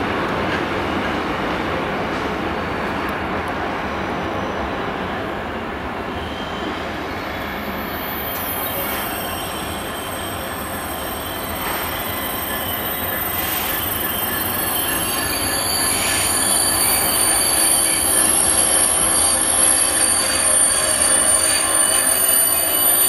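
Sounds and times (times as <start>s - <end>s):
high-pitched wheel squeal: 6.1s - 23.0s.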